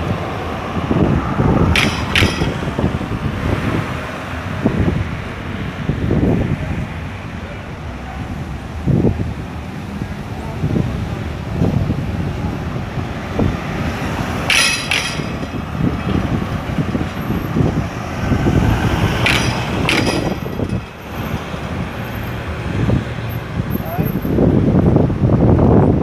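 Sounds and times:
traffic passing: 0.0 - 26.0
wind buffeting microphone: 0.0 - 26.0
sharp clatters: 1.7 - 3.1, 14.4 - 17.8, 18.8 - 21.6.

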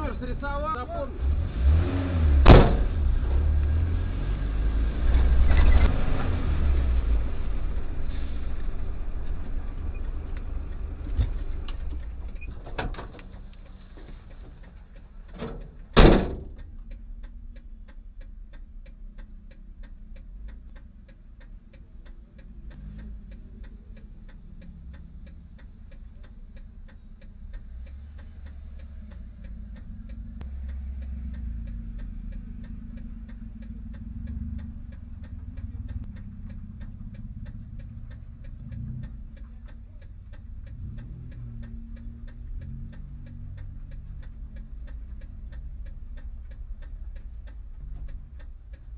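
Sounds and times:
car engine idling: 0.0 - 48.9
turn signal relay ticking: 0.0 - 48.9
loud impact thump: 2.4 - 3.0, 16.0 - 16.5.

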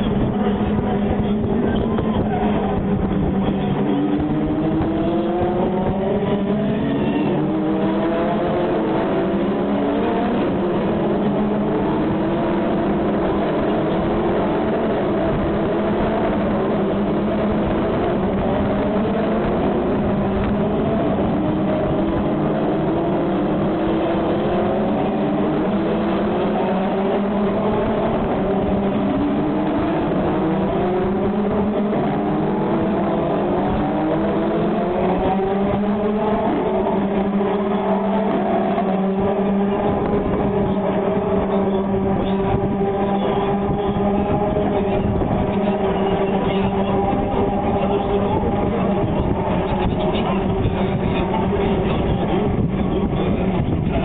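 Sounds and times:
low engine drone: 0.0 - 54.0
race car engines accelerating: 0.0 - 54.0.

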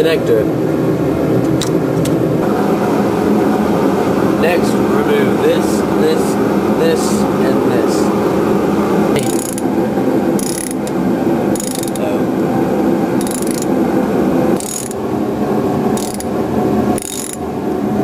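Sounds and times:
steady background hum: 0.0 - 18.0
ratchet wrench clicking: 9.2 - 9.6, 10.4 - 10.9, 11.6 - 12.0, 13.2 - 13.7, 14.6 - 15.0, 16.0 - 16.3, 17.0 - 17.4.

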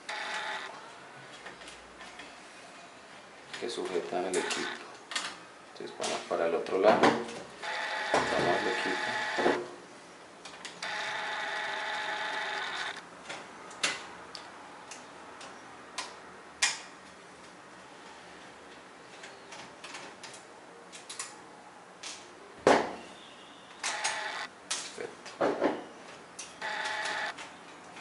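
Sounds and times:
mechanical whir: 0.1 - 0.7, 10.8 - 13.0, 26.6 - 27.3.

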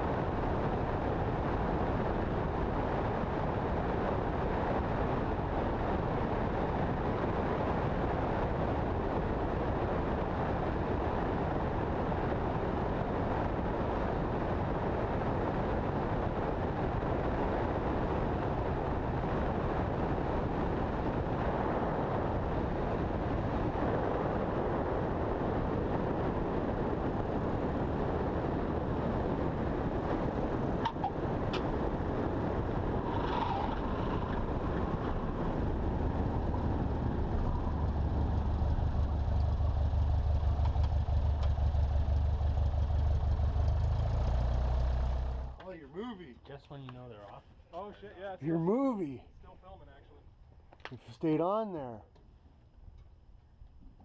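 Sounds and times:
wind rush: 0.0 - 45.6
airplane engine and propeller: 0.0 - 50.1.

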